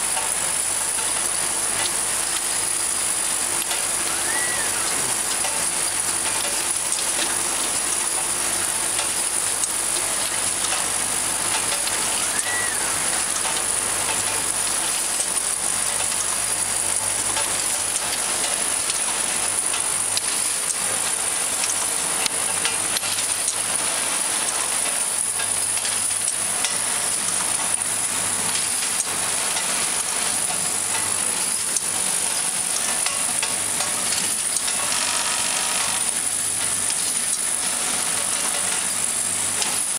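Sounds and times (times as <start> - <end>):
machine clattering ticks: 8.9 - 12.1, 13.3 - 23.7, 28.5 - 35.0.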